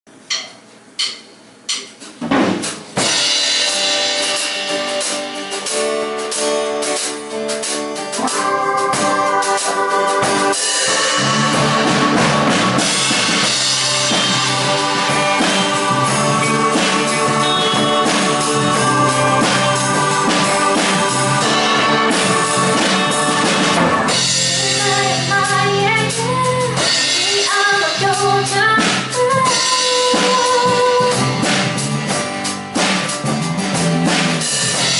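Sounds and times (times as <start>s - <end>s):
count-in clicks: 0.3s - 2.0s
live band playing: 2.8s - 34.9s
woman singing: 8.2s - 31.4s.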